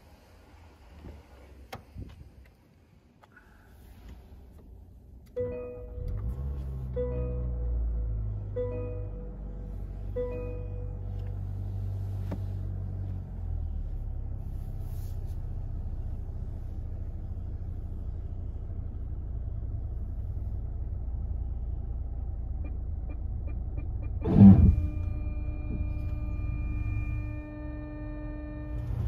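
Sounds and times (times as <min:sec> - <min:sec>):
car engine and road rumble: 0:00.0 - 0:29.0
parking sensor beeps: 0:05.4 - 0:06.3, 0:08.5 - 0:11.3, 0:22.6 - 0:29.0
steady warning tone: 0:22.6 - 0:29.0
car braking jolt: 0:24.0 - 0:27.3.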